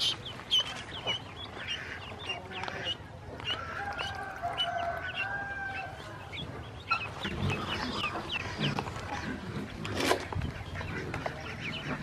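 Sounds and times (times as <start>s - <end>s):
ducklings peeping: 0.0s - 12.0s.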